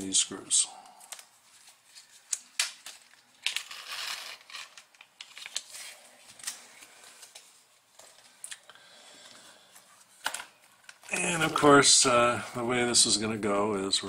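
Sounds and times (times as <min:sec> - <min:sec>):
plastic bag tearing and crinkling: 0:02.2 - 0:05.9.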